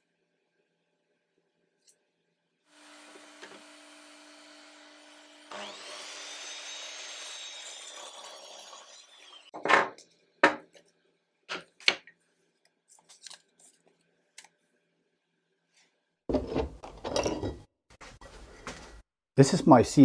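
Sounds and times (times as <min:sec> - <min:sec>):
miter saw cutting wood: 0:02.7 - 0:09.6.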